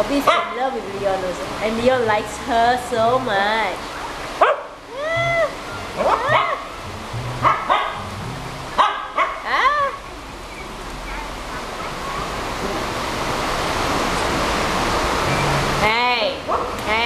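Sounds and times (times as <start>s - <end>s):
small dogs yapping: 6.0s - 6.7s, 7.4s - 8.0s, 8.8s - 9.5s.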